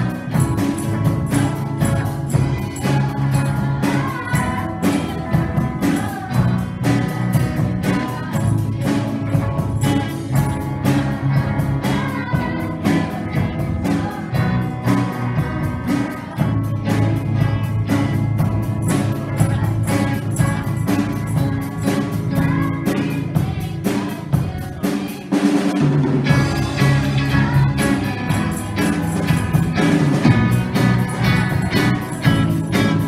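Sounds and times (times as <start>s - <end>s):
drum kit beat: 0.0s - 33.0s
rock band playing live: 0.0s - 33.0s.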